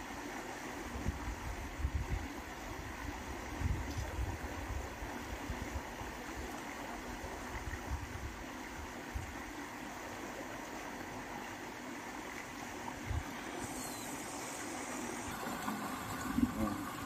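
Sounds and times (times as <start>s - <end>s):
water rushing: 4.3s - 17.0s.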